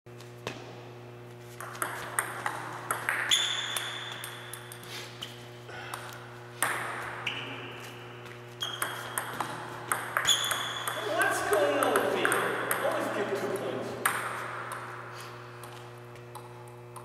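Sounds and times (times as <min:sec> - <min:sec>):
steady low hum: 0:00.1 - 0:17.0
high ringing tone: 0:03.3 - 0:04.8, 0:10.0 - 0:11.2
table tennis ball clicking: 0:08.6 - 0:11.1.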